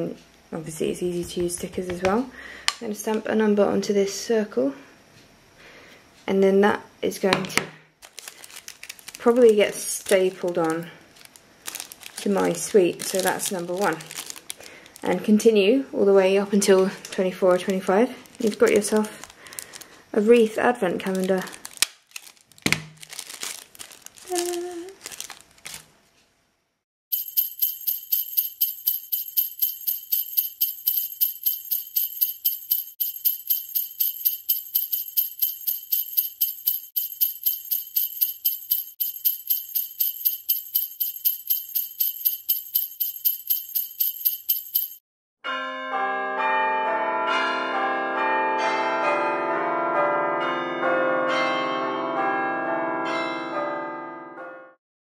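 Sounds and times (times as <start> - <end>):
jingle bells shaking: 8.0 - 15.4, 16.9 - 20.0, 21.0 - 22.4, 23.0 - 25.8, 27.1 - 45.0
bells ringing: 27.1 - 45.8.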